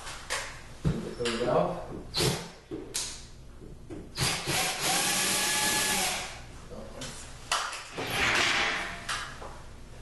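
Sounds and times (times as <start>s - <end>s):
cordless drill driving screw: 4.2s - 6.4s.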